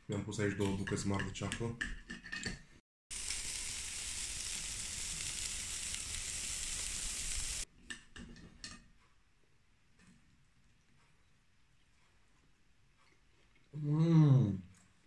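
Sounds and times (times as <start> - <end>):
meat sizzling on grill: 3.1 - 7.7.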